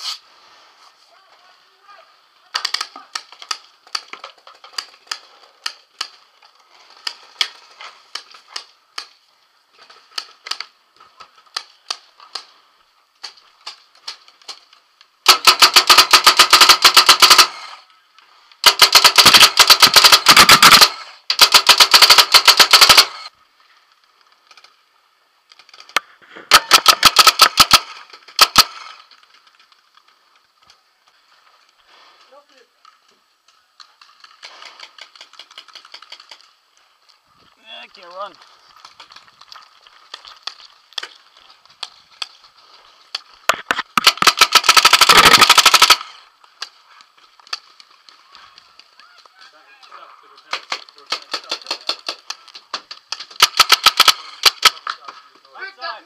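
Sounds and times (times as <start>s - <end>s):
paintball marker rapid shots: 15.2s - 17.8s, 18.6s - 23.3s, 26.5s - 29.0s, 43.4s - 46.2s, 50.4s - 55.0s
faint clicks and pops: 32.7s - 55.5s.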